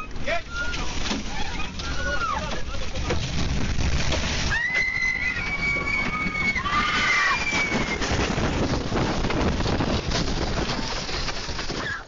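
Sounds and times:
wind and rain noise: 0.0s - 12.0s
people screaming: 4.5s - 8.2s.

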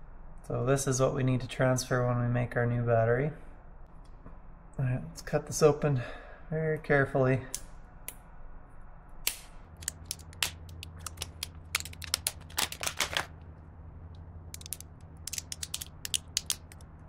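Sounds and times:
plastic case cracking and snapping: 9.8s - 13.3s, 14.6s - 16.8s.

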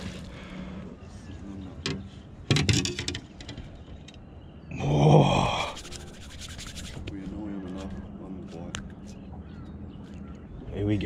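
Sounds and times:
man groaning: 4.7s - 5.8s.

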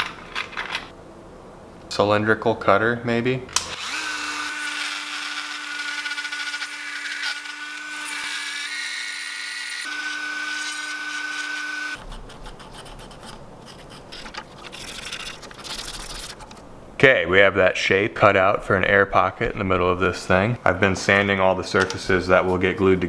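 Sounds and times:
rotary tool grinding plastic: 3.8s - 12.0s
scratchy rubbing of plastic: 12.0s - 16.7s.

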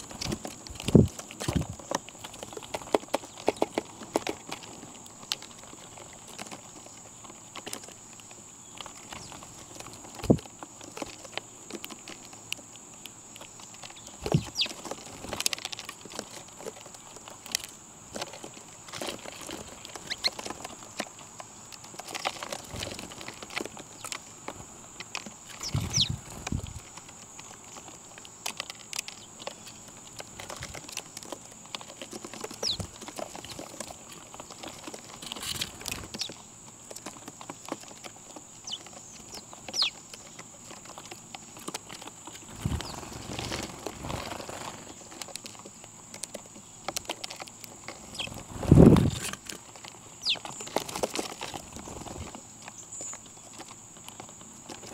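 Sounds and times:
birds pecking and scuffling: 0.0s - 54.9s
high bird chirps: 14.0s - 14.8s, 25.5s - 26.2s, 38.6s - 40.0s, 48.1s - 48.4s, 50.2s - 50.5s.

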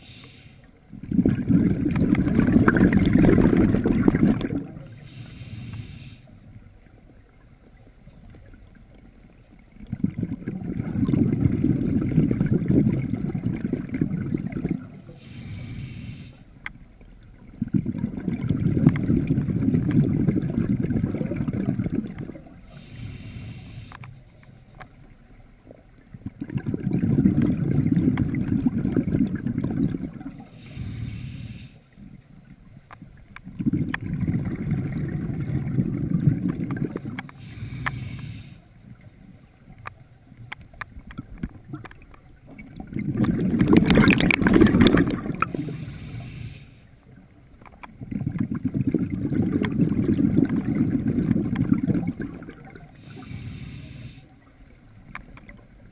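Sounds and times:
regulator inhalation hiss: 0.0s - 0.7s, 4.9s - 6.3s, 15.2s - 16.6s, 22.7s - 24.0s, 30.5s - 31.9s, 37.3s - 38.7s, 45.6s - 46.9s, 53.0s - 54.3s
rumbling exhaust bubbles: 0.9s - 5.4s, 9.8s - 15.7s, 17.4s - 24.0s, 26.2s - 31.2s, 33.5s - 38.4s, 42.6s - 46.4s, 48.0s - 54.2s.

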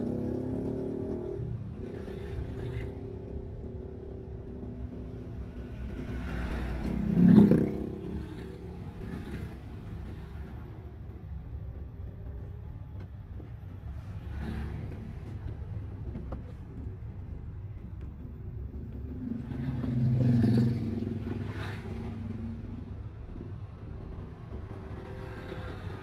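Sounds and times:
vehicle passing by: 0.0s - 10.2s, 19.0s - 23.4s
car engine and road noise: 0.0s - 26.0s.

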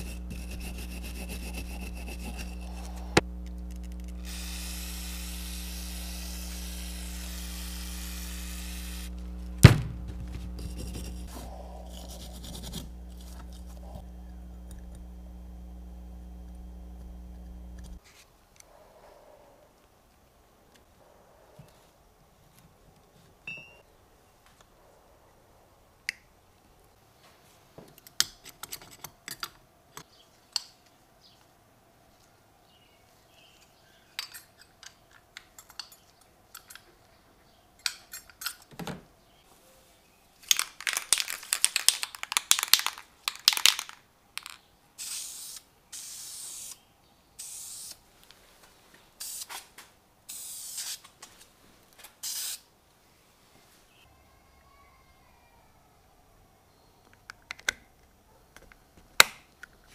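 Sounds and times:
spray paint hissing: 0.0s - 3.3s, 4.0s - 9.2s, 45.0s - 46.8s, 47.4s - 48.0s, 49.2s - 49.6s, 50.3s - 51.1s, 52.2s - 52.6s
clicks and knocks of parts: 40.4s - 44.6s
spray can rattling: 40.5s - 46.7s, 52.2s - 52.6s.

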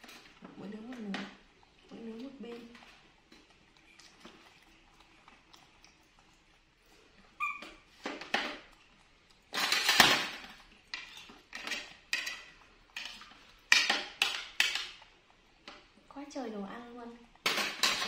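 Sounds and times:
dishes and utensils clattering: 9.5s - 15.0s, 17.4s - 18.0s.

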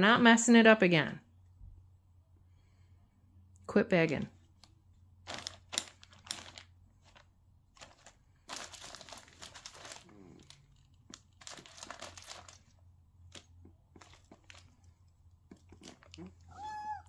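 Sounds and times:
plastic bag crinkling: 4.6s - 17.0s.

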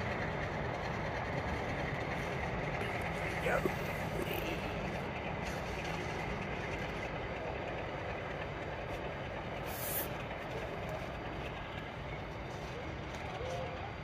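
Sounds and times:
diesel locomotive rumble: 0.0s - 14.0s
short hiss: 9.6s - 10.1s.

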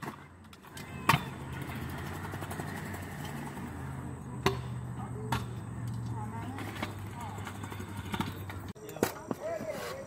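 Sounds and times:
scooter clacking on concrete: 0.0s - 10.0s
scooter wheels rolling on concrete: 0.0s - 10.0s.

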